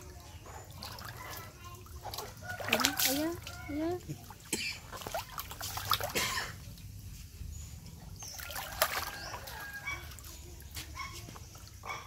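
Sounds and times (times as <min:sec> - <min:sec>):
water splashing in a plastic tub: 0:00.0 - 0:12.0.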